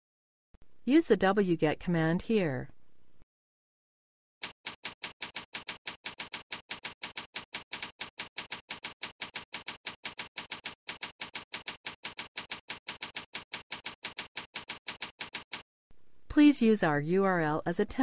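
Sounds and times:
keyboard typing clicks: 4.4s - 15.6s.

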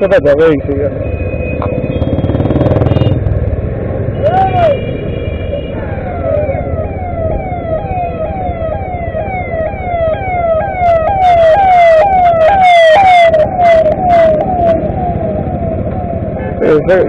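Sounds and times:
motorcycle riding: 0.0s - 17.0s
road traffic noise: 0.0s - 17.0s
siren yelping: 5.7s - 17.0s.

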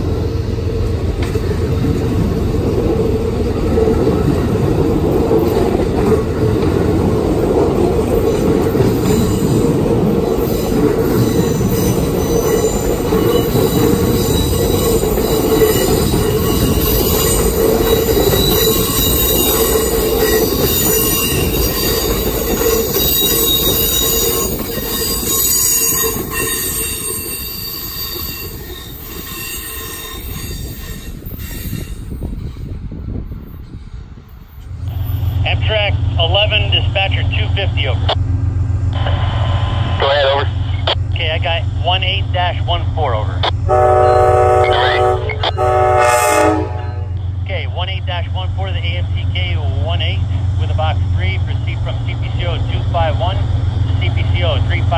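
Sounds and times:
train wheels rumbling on rails: 0.0s - 54.9s
high steady wheel squeal: 9.0s - 32.7s.

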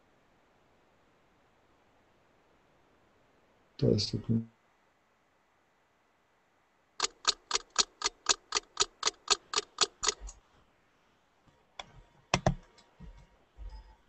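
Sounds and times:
computer mouse clicking: 7.0s - 10.4s, 11.8s - 12.9s.

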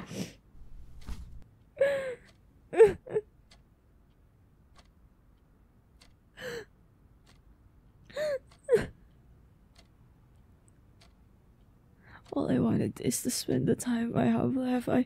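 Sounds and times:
woman sobbing: 1.8s - 3.3s, 8.1s - 9.0s.

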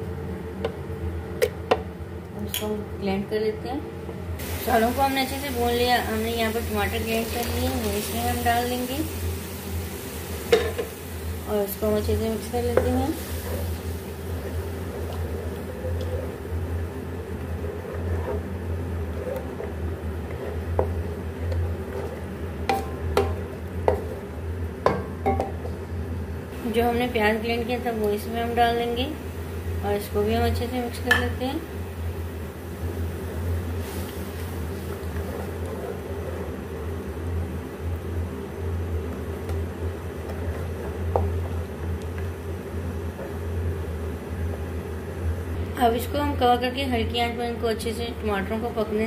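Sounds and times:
steady low hum: 0.0s - 49.0s
wooden spoon stirring thick sauce: 12.7s - 16.5s, 17.2s - 24.4s, 34.3s - 36.7s, 39.1s - 43.5s
spoon knocking metal pan: 24.9s - 25.6s.

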